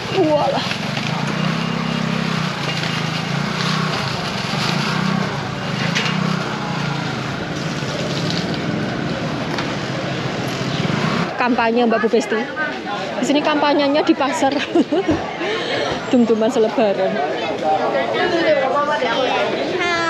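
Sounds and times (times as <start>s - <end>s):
plastic bags rustling: 0.0s - 8.7s.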